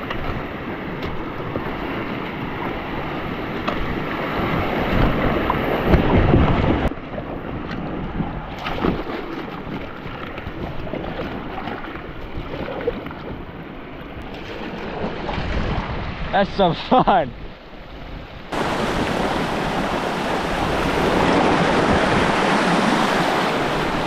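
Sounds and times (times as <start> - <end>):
wind buffeting microphone: 0.0 - 24.0
river water rushing: 18.4 - 24.0.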